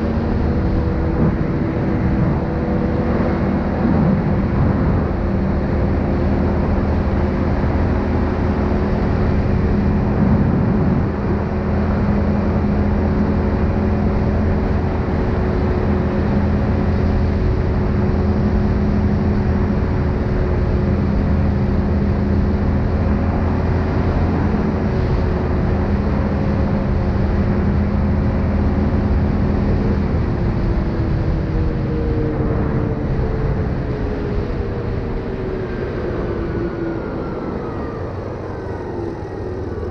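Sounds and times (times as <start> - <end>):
atv engine running: 0.0 - 35.2
road and wind noise: 0.0 - 39.9.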